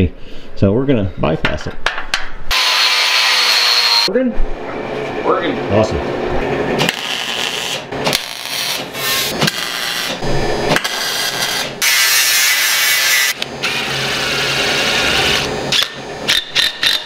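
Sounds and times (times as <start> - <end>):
angle grinder cutting metal sheet: 2.5 - 4.1, 10.8 - 17.0.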